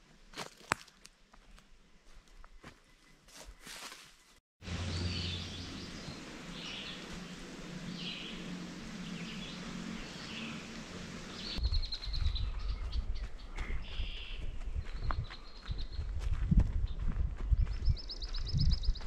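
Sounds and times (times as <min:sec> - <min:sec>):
footsteps on forest trail: 0:00.0 - 0:19.0
bird chirping: 0:04.8 - 0:16.1.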